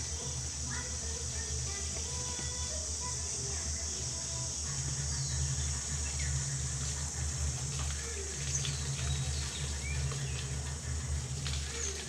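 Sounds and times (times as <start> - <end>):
steady low hum: 0.0 - 12.0
hose water splashing: 6.8 - 12.0.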